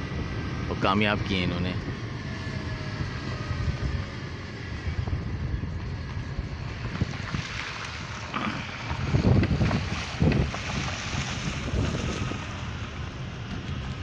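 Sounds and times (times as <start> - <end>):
vehicle rumble: 0.0 - 14.0
wind buffeting microphone: 0.0 - 14.0
water splashing from tyres: 6.5 - 14.0.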